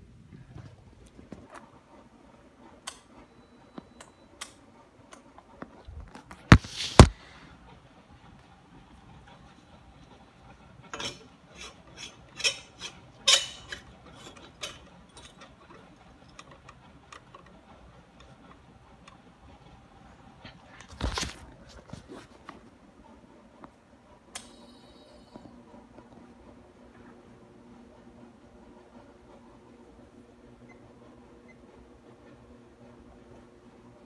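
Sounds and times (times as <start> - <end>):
irregular clicks and clatters: 10.8 - 19.8.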